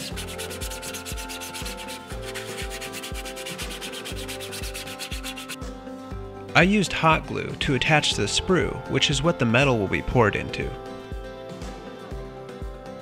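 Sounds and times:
sanding sponge scrubbing plastic: 0.0s - 5.6s.

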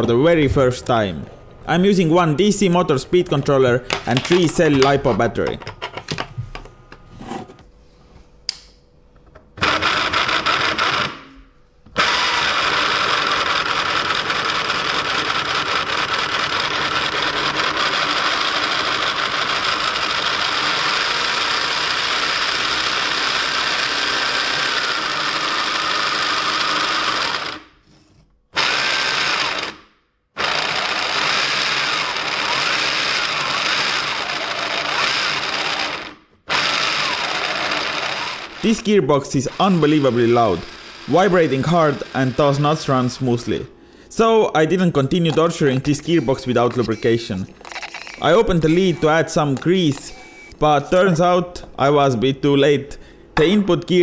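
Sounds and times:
gearbox whine and grinding: 30.4s - 38.9s, 46.1s - 50.6s.

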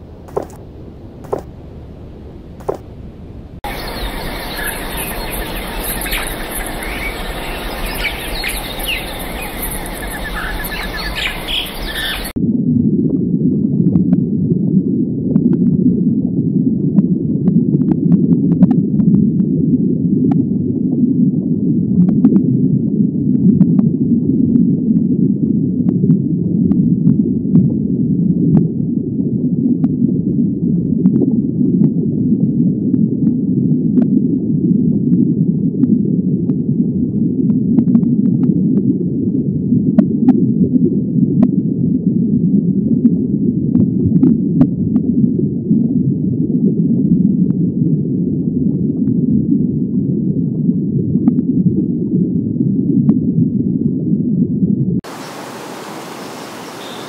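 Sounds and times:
muffled underwater rumble: 0.0s - 55.6s
outdoor hiss: 3.7s - 12.3s, 55.1s - 57.0s.

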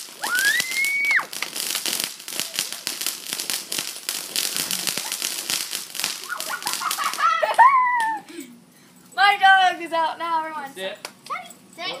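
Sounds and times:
firework fountain crackling: 0.0s - 8.3s.

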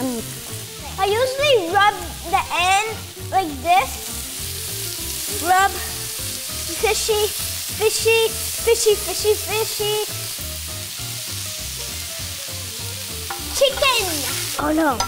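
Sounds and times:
pork sizzling on grill pan: 0.0s - 15.0s.

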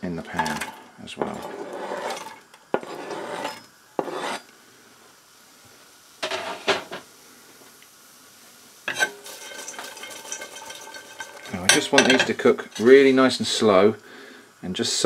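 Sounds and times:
utensil scraping in a pan: 0.1s - 4.5s, 6.2s - 7.1s, 8.8s - 13.5s
onion scraped into a pan: 0.3s - 4.5s, 8.9s - 13.3s.

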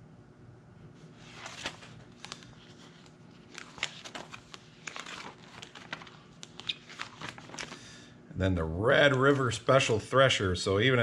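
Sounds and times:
plastic sheet protectors crinkling: 1.2s - 7.8s.

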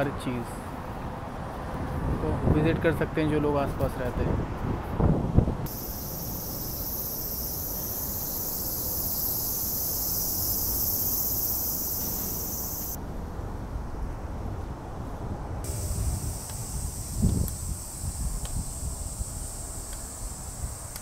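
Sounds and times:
wind rumble on microphone: 0.6s - 6.9s, 12.6s - 21.0s
cicadas buzzing: 5.7s - 13.0s, 15.6s - 21.0s.

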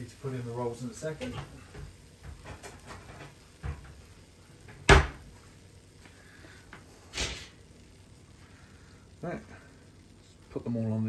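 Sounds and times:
cupboard door banging shut: 4.8s - 5.2s.

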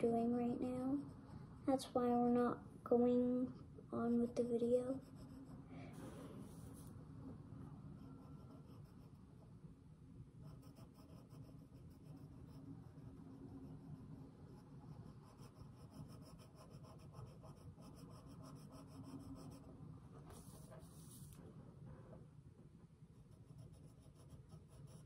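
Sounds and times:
pencil scratching on paper: 4.2s - 5.6s, 8.0s - 9.2s, 10.4s - 19.7s, 20.3s - 21.4s, 23.2s - 25.0s.

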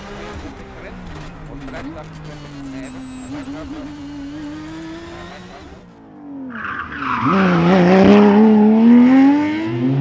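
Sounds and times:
tyres on loose dusty road: 0.0s - 8.2s
rally car engine pulling hard: 0.0s - 10.0s.

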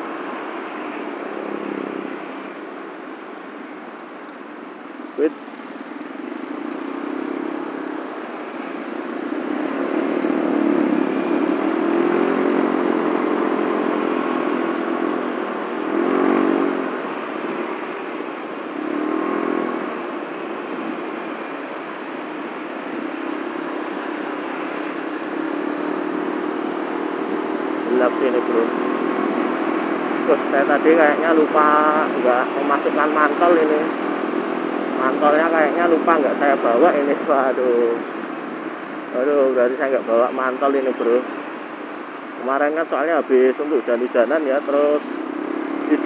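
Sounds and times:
road noise rush: 0.0s - 46.0s
scooter engine revving: 5.8s - 39.0s.

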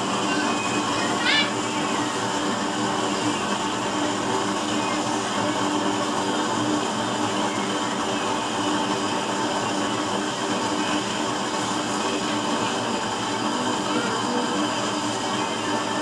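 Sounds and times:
stove burner rushing: 0.0s - 16.0s
faint hum: 6.8s - 16.0s.

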